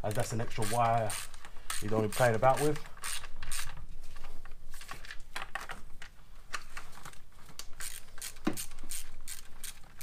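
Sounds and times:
hand ratchet clicking: 0:00.1 - 0:03.8, 0:07.8 - 0:10.0.

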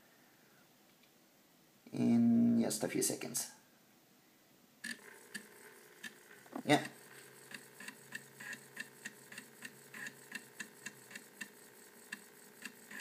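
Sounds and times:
floppy drive head clicking: 0:04.8 - 0:13.0.

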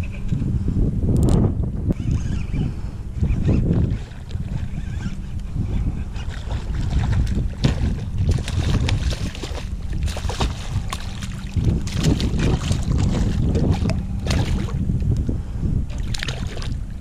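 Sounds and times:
wind buffeting microphone: 0:00.0 - 0:17.0
fish thrashing and splashing: 0:06.2 - 0:14.8, 0:15.9 - 0:16.8.

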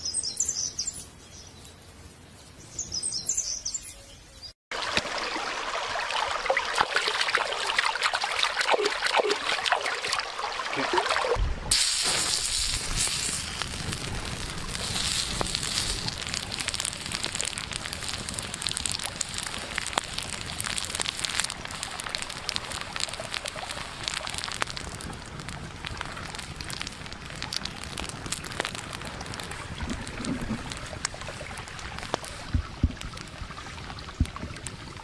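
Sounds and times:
wood fire crackling: 0:06.6 - 0:35.0
rice sizzling on hot stone: 0:11.7 - 0:33.3.

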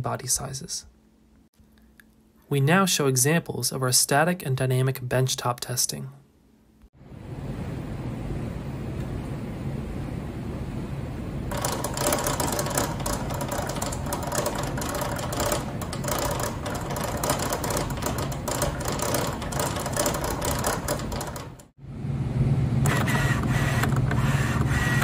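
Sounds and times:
low steady hum: 0:00.0 - 0:24.1
gear chattering and rattling: 0:11.5 - 0:21.7.

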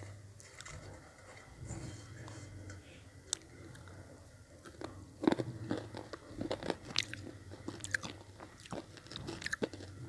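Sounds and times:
crunchy chalk bitten and chewed: 0:04.6 - 0:10.0.

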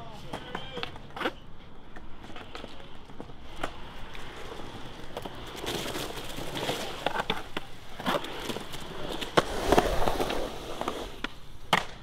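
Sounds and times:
skateboard wheels rolling on concrete: 0:00.0 - 0:12.0
skateboard clacks: 0:00.1 - 0:12.0.

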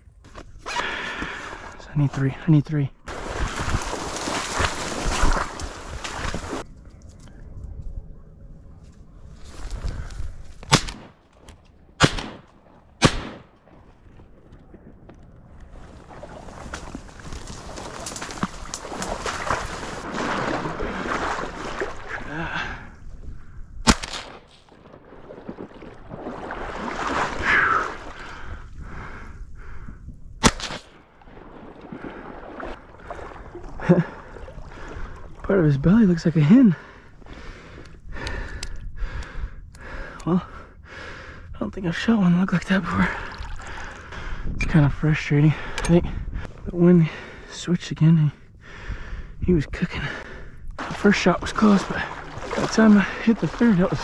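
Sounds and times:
water lapping and sloshing: 0:03.1 - 0:06.6, 0:15.7 - 0:23.0, 0:24.2 - 0:29.0, 0:30.9 - 0:35.8, 0:43.0 - 0:44.4, 0:50.2 - 0:54.0
shotgun shots: 0:10.7 - 0:11.2, 0:12.0 - 0:13.6, 0:23.8 - 0:24.5, 0:30.4 - 0:31.0.

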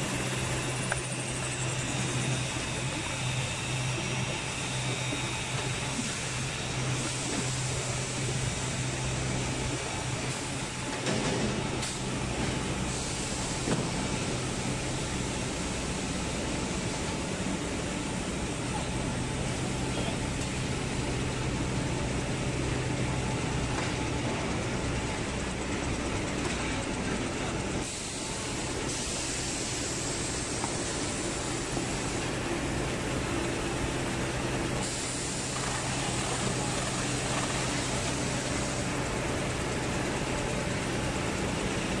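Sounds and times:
production line machinery running: 0:00.0 - 0:42.0.

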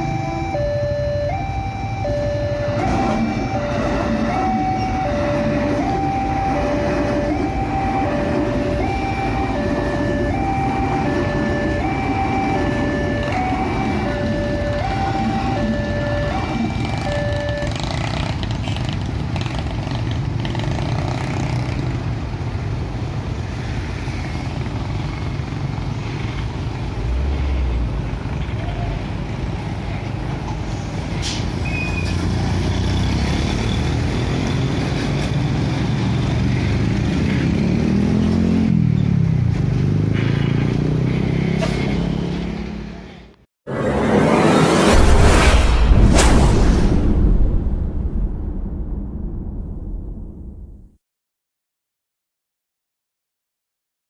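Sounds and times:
diesel truck engine: 0:00.0 - 0:23.2
motorcycle and car engines passing: 0:00.0 - 0:31.0, 0:31.8 - 0:45.8.

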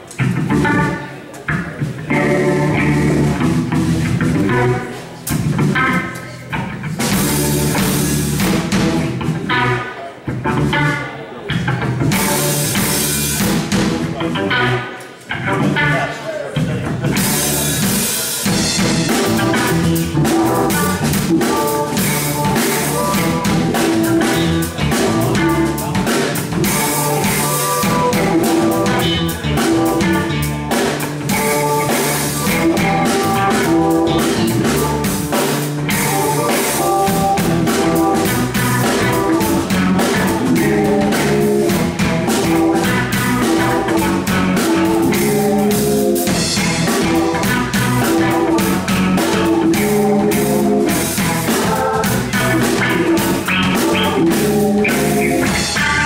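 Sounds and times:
funk band playing: 0:00.0 - 0:56.0.

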